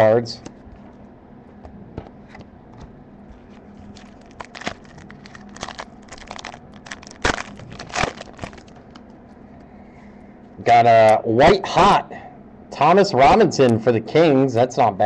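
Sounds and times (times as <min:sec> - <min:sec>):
foil wrapper tearing and crinkling: 0:03.9 - 0:09.0.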